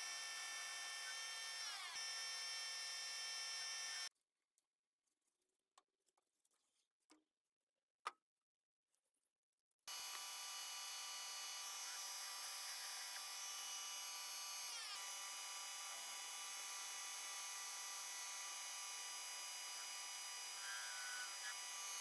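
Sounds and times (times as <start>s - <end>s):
metal lathe whining: 0.0s - 4.1s, 9.9s - 22.0s.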